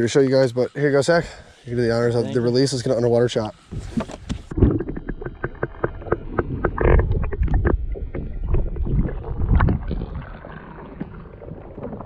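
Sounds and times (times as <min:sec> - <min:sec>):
underwater sloshing: 0:02.4 - 0:12.0
sharp clicks and knocks: 0:03.8 - 0:08.2.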